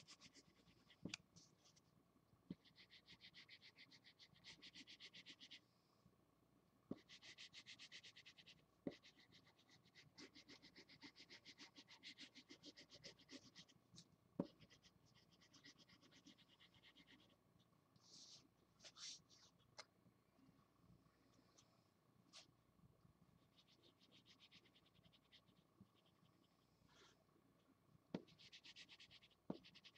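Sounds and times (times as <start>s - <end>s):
marker scratching on paper: 0.0s - 1.8s, 2.5s - 5.6s, 6.9s - 13.8s, 14.4s - 17.4s, 23.5s - 26.2s, 28.2s - 29.9s.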